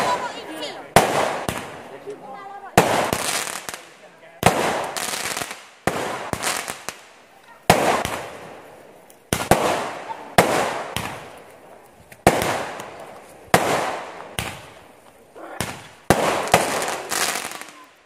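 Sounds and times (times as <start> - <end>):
firework shells bursting: 0.0 - 2.1, 2.7 - 18.0.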